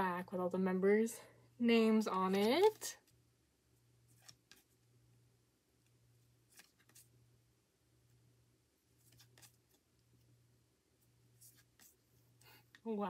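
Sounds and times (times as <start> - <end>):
faint low hum: 0.0 - 13.0
cards shuffling clicks: 6.5 - 7.1, 9.0 - 9.8.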